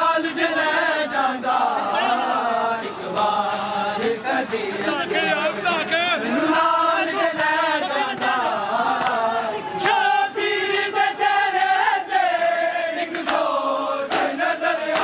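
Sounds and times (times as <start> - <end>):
men chanting lament: 0.0 - 15.0
hands slapping chests: 6.4 - 10.1, 12.4 - 15.0.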